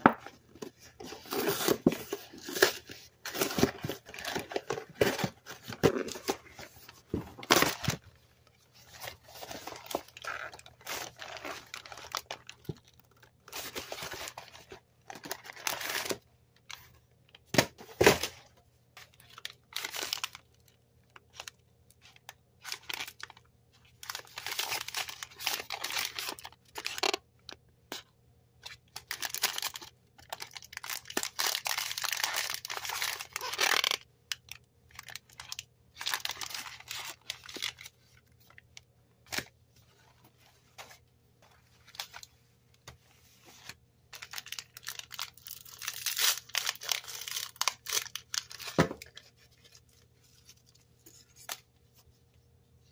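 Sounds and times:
plastic wrappers rustling: 0.7s - 16.2s, 19.1s - 27.2s, 28.9s - 38.7s, 43.6s - 51.5s.

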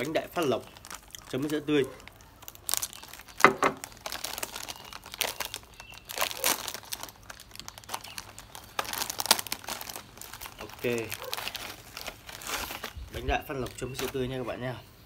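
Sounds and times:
packet tearing open: 0.0s - 13.0s
plastic snack packet crinkling: 0.0s - 14.4s.

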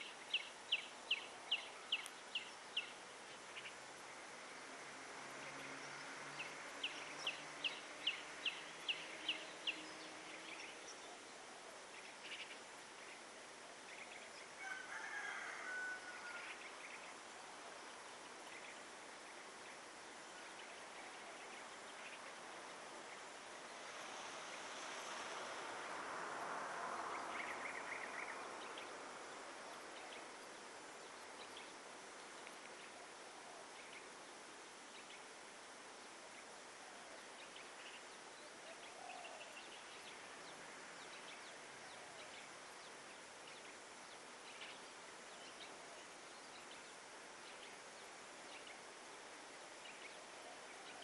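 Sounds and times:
steady hiss: 0.0s - 51.0s.

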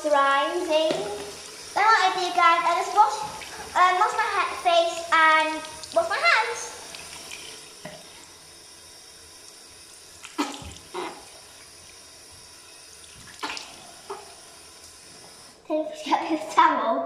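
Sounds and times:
water splashing: 0.0s - 8.3s, 10.1s - 12.0s, 13.0s - 14.3s
tap running into sink: 0.6s - 1.6s, 3.0s - 3.8s, 6.8s - 8.2s, 10.2s - 11.3s.

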